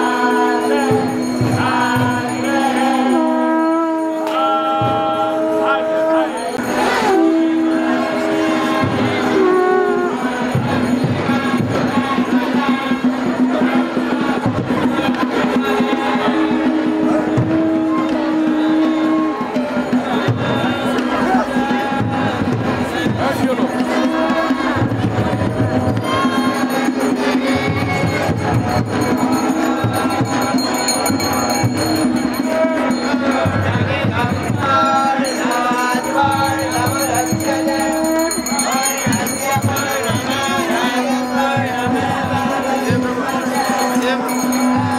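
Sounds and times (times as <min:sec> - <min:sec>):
conch shells blown: 0:00.0 - 0:10.8, 0:15.8 - 0:21.3, 0:34.3 - 0:41.6
drumbeats: 0:00.0 - 0:44.9
group chanting: 0:00.0 - 0:44.9
jingling percussion: 0:00.0 - 0:44.9.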